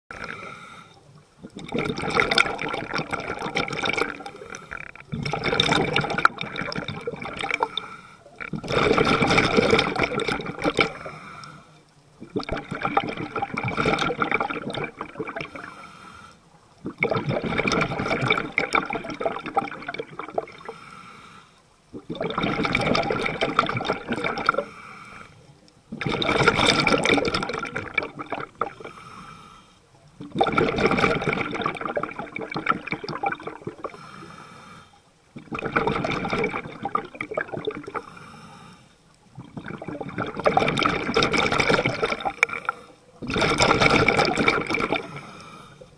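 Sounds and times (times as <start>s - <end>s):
diver breathing through regulator: 0.1s - 1.1s, 7.4s - 8.4s, 9.7s - 11.9s, 15.5s - 16.5s, 20.6s - 21.6s, 24.4s - 25.5s, 28.6s - 29.9s, 33.8s - 35.1s, 37.8s - 39.1s, 44.6s - 45.9s
rush of bubbles: 1.4s - 11.2s, 12.2s - 15.7s, 16.8s - 20.7s, 21.9s - 24.7s, 25.9s - 28.9s, 30.2s - 34.0s, 35.3s - 38.1s, 39.3s - 45.4s.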